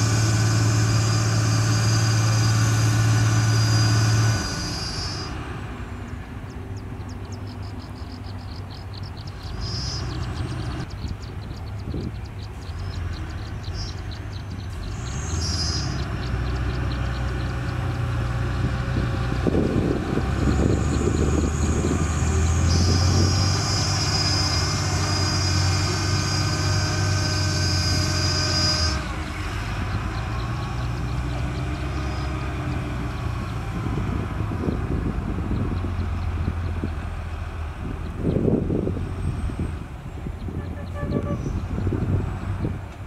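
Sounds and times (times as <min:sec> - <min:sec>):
high whine: 0:00.0 - 0:12.1
diesel engine running: 0:00.0 - 0:43.0.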